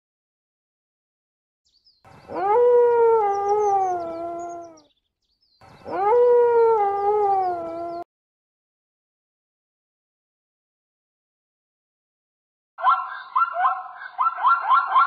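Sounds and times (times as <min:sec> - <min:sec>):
high bird chirps: 0:01.7 - 0:02.4, 0:03.2 - 0:06.0, 0:07.0 - 0:08.0, 0:12.8 - 0:15.0
dog howling: 0:02.3 - 0:04.8, 0:05.8 - 0:08.0.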